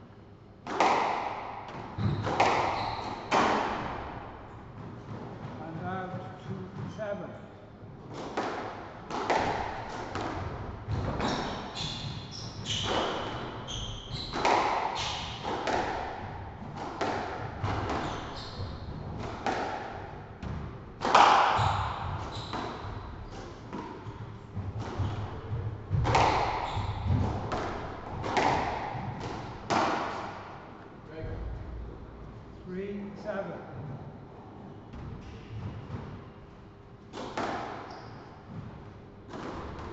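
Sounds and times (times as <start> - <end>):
squash ball hits echoing: 0.6 - 6.6, 8.1 - 30.7, 37.1 - 39.9
shoes squeaking on wooden floor: 2.0 - 3.4, 11.2 - 15.2, 17.7 - 19.0, 21.6 - 23.5, 24.9 - 27.2.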